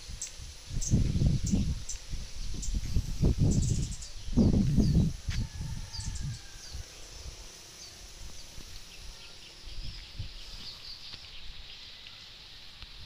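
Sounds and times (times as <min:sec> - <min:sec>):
low rumbling on microphone: 0:00.0 - 0:07.4
birds chirping: 0:00.0 - 0:13.0.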